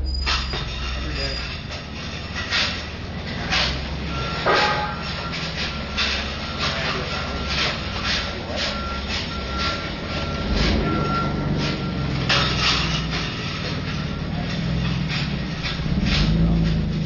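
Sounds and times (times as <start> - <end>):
high beeping tone: 4.0 - 14.4.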